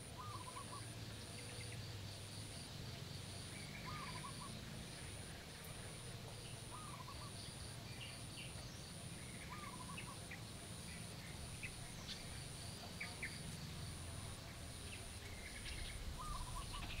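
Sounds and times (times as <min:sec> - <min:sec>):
bird wavering call: 0:00.0 - 0:00.9, 0:03.6 - 0:04.6, 0:06.7 - 0:07.4, 0:09.4 - 0:10.2, 0:16.2 - 0:17.0
bird chirps: 0:00.0 - 0:01.9, 0:03.2 - 0:05.0, 0:06.3 - 0:17.0
steady low hum: 0:00.0 - 0:17.0.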